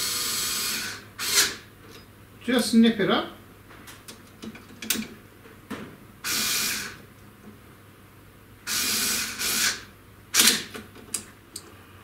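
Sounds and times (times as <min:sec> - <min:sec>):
hand tool hissing rasps: 0:08.7 - 0:09.8.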